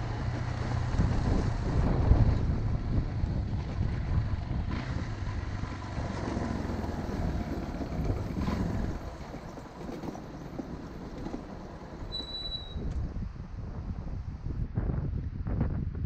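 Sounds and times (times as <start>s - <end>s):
motorcycle engine running: 0.0s - 11.4s
road and air noise: 0.0s - 16.0s.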